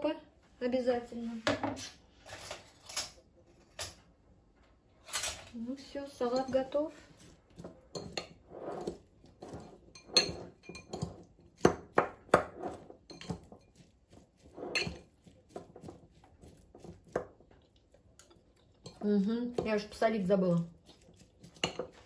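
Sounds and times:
salad vegetables rustling: 5.5s - 11.6s, 12.6s - 22.0s
fork clinking against ceramic bowl: 9.5s - 11.2s, 14.6s - 15.1s.

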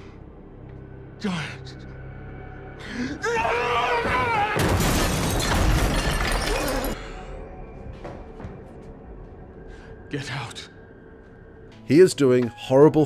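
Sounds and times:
glass shattering: 4.6s - 7.0s.

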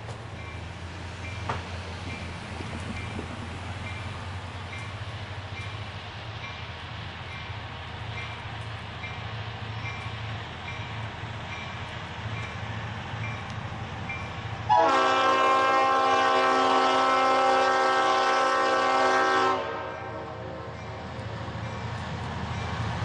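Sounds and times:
diesel locomotive engine rumbling: 0.0s - 23.0s
locomotive air horn blast: 14.7s - 20.6s.

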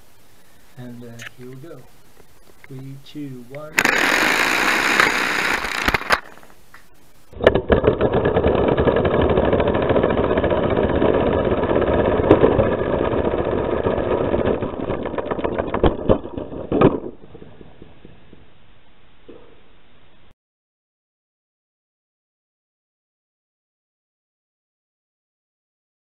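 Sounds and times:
air piston engine chattering: 3.8s - 6.5s.

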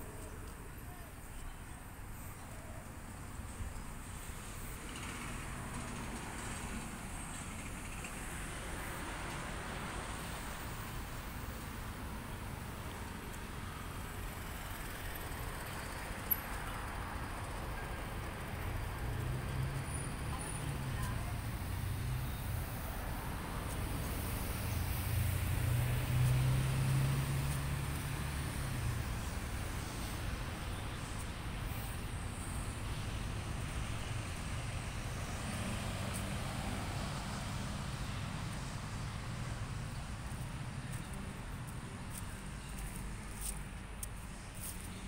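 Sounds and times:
road traffic rumble: 0.0s - 45.0s
vehicle engine passing: 23.1s - 30.2s, 33.4s - 39.9s.

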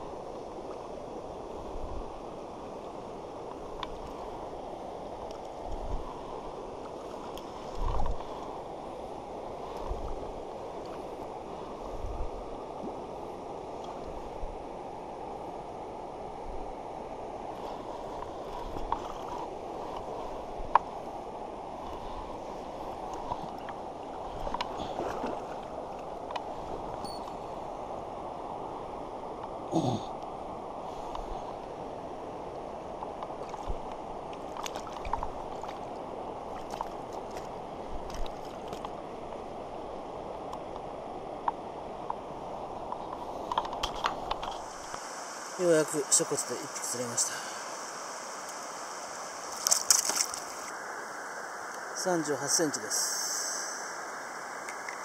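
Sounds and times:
river water rushing over rocks: 0.0s - 55.0s.

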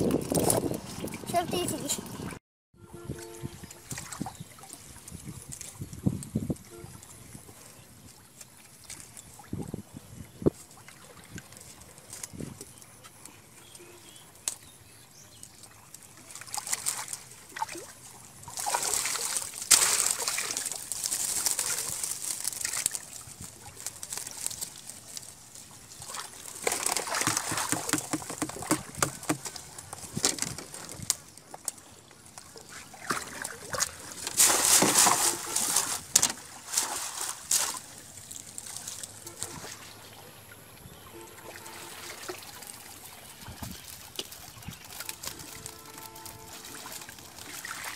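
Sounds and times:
water streaming and splashing: 0.0s - 47.9s
water and fish dropping into crate: 16.3s - 31.7s, 32.3s - 39.9s, 43.6s - 47.9s.

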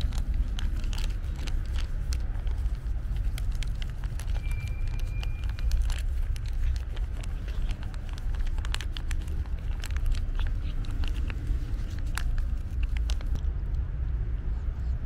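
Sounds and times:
cat chewing and licking: 0.0s - 13.6s
steady low rumble: 0.0s - 15.0s.

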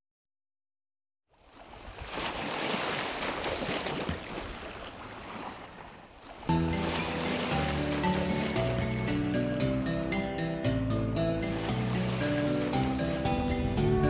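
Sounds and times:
rush like surf breaking: 6.5s - 9.6s, 11.2s - 14.0s
music: 6.5s - 14.0s.

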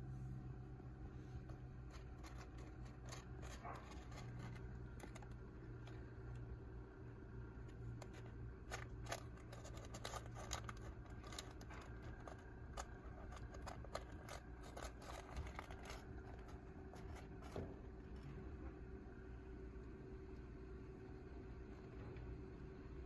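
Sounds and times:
faint steady hum: 0.0s - 23.0s
kittens scratching and scrabbling: 1.1s - 18.8s.

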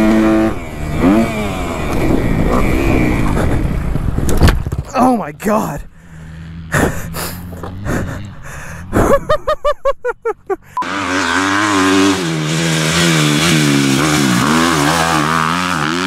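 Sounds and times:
dirt bike engine revving: 0.0s - 4.3s, 6.0s - 8.9s, 10.7s - 16.0s.

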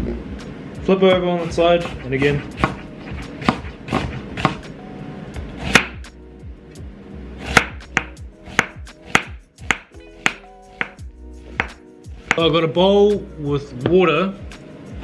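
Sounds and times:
knife chopping on wooden board: 1.1s - 4.7s, 5.6s - 6.1s, 7.4s - 12.6s.

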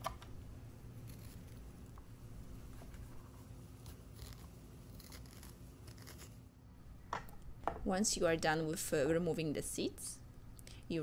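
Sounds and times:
low steady hum: 0.0s - 11.0s
metal spoon scraping squash: 3.8s - 6.4s.

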